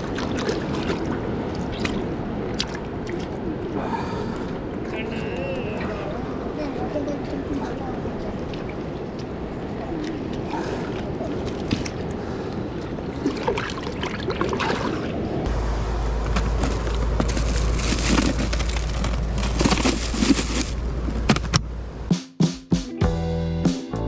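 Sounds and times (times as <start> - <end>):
seawater washing over rocks: 0.0 - 5.1
low steady rumble: 15.1 - 22.1.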